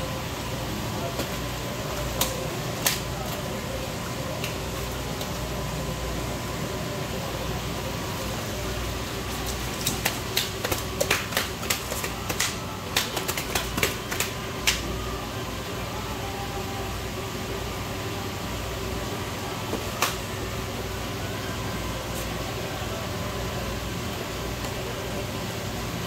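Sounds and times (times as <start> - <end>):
steady hum: 0.0 - 26.0
fish slapping on wet floor: 9.3 - 14.8.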